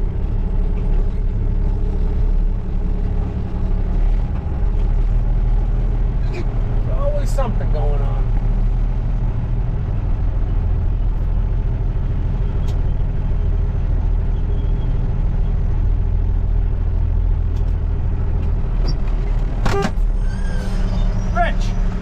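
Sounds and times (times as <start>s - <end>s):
truck diesel engine droning: 0.0s - 22.0s.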